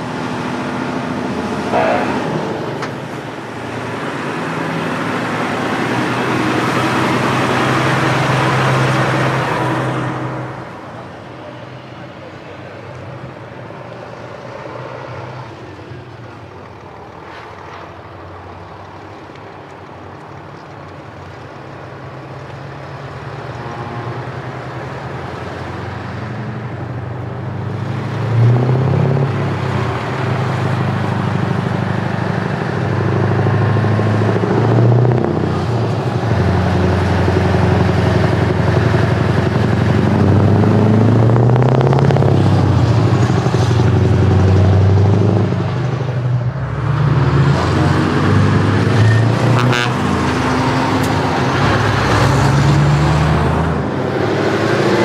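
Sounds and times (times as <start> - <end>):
truck diesel engine passing: 0.0 - 55.0.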